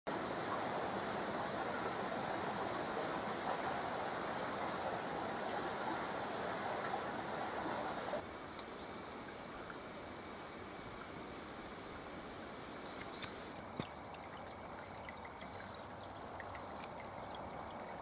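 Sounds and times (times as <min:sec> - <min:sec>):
brook babbling over stones: 0:00.1 - 0:18.0
faint high chirp: 0:08.5 - 0:10.1.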